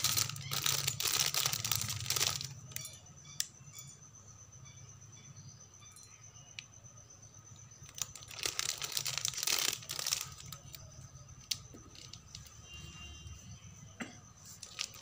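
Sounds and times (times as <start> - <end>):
plastic bag crinkling: 0.0 - 2.8, 7.8 - 12.5, 14.6 - 15.0.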